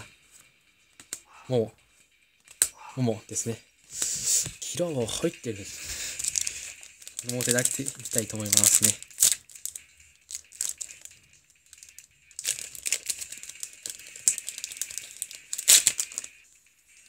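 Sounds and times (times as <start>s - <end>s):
wrapper crinkling: 6.0s - 11.1s, 11.7s - 16.4s.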